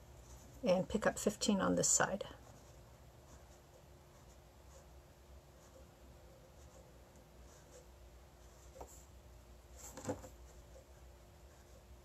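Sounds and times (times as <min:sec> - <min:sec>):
needle scratching on bead mat: 0:02.2 - 0:09.2.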